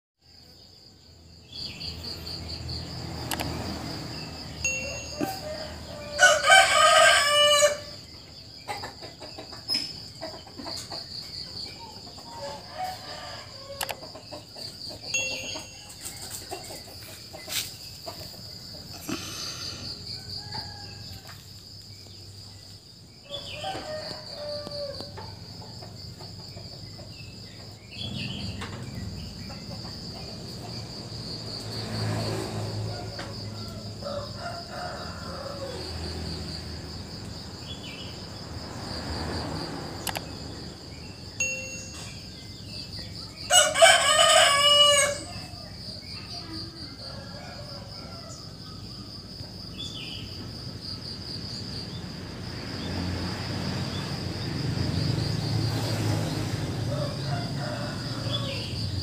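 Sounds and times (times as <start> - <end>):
crickets trilling: 0.2 - 59.0
rooster crowing: 4.6 - 8.0, 12.3 - 14.1, 18.9 - 21.6, 23.2 - 25.8, 32.1 - 37.0, 43.4 - 49.0, 56.5 - 59.0
chicken clucks: 8.6 - 12.6, 13.8 - 18.9.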